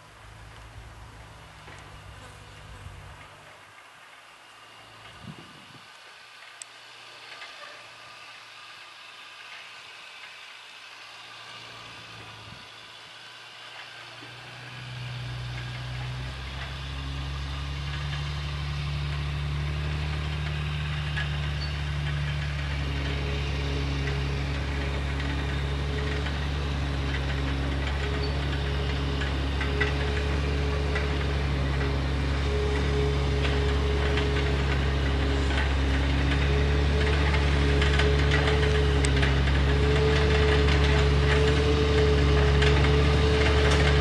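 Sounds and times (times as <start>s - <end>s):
truck engine running: 0.0s - 44.0s
light ticks: 5.9s - 6.8s.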